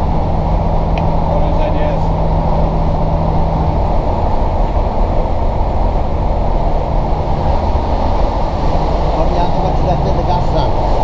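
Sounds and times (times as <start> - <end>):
train rumbling on track: 0.0 - 11.0.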